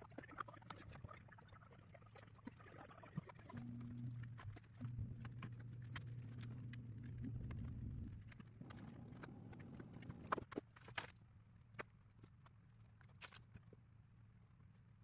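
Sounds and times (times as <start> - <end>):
low steady hum: 0.2 - 15.0.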